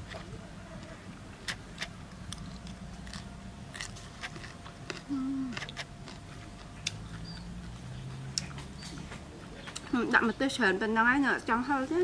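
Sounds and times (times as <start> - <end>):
person chewing crunchy food: 1.4 - 9.0.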